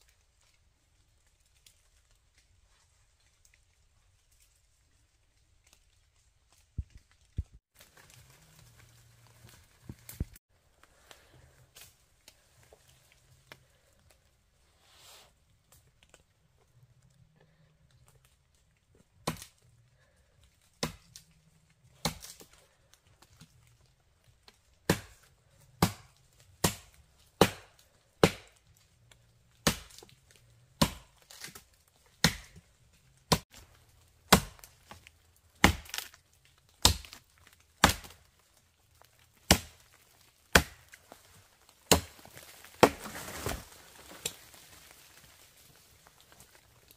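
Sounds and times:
blade chopping wood: 24.9 - 25.2, 25.8 - 28.6, 29.6 - 30.0, 30.8 - 31.6, 32.2 - 32.6, 33.3 - 33.5, 34.3 - 35.0, 35.6 - 36.1, 36.8 - 37.2, 37.8 - 38.2, 39.4 - 39.9, 40.5 - 41.0, 41.9 - 43.6.

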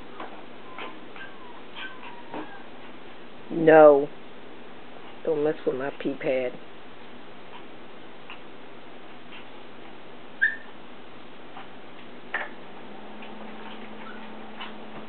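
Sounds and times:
short high squeak: 10.4 - 10.7.

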